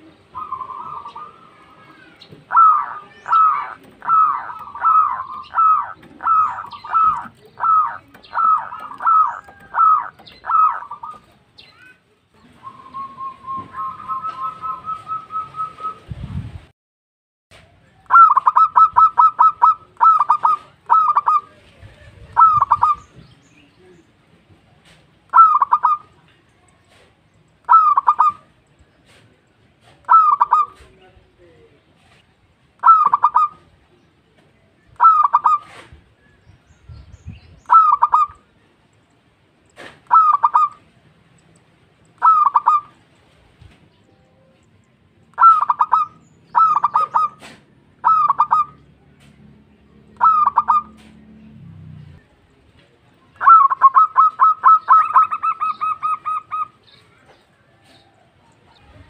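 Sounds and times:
dove cooing: 0.0s - 11.4s, 12.6s - 16.0s, 18.1s - 23.2s, 25.3s - 26.1s, 27.6s - 28.5s, 29.8s - 30.9s, 32.8s - 33.7s, 35.0s - 36.0s, 37.6s - 38.4s, 39.8s - 40.9s, 42.2s - 43.0s, 45.4s - 49.0s, 50.1s - 51.2s, 53.4s - 59.0s.

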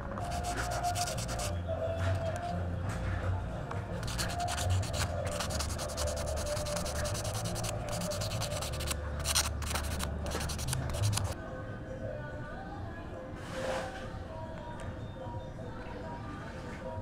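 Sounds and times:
sandpaper rubbing on wood: 0.2s - 1.6s, 4.0s - 11.4s.

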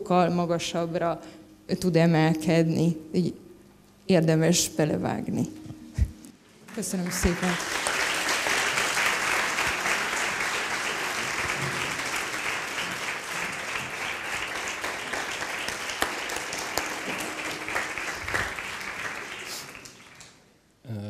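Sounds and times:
audience applauding: 6.7s - 20.5s.

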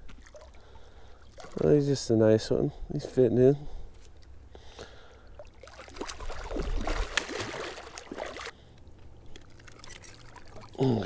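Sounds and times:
water splashing and dripping: 0.0s - 1.6s, 5.4s - 8.5s, 9.3s - 11.0s.

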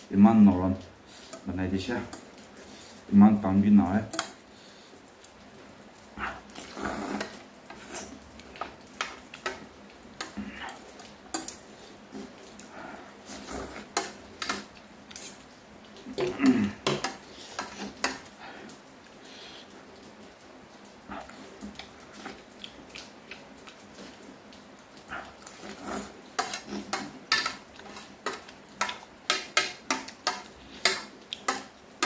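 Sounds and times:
noodles slurped and chewed: 6.2s - 9.6s, 10.2s - 15.4s, 21.0s - 31.7s.

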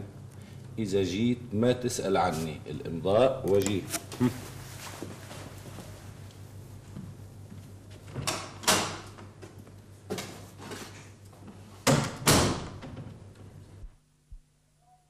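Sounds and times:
door knocks and bangs: 11.9s - 13.2s.

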